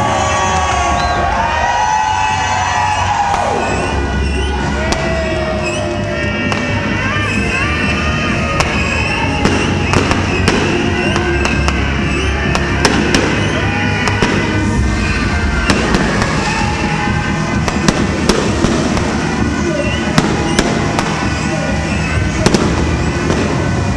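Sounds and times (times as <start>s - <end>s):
background music: 0.0s - 23.9s
fireworks bangs and crackles: 2.2s - 23.9s.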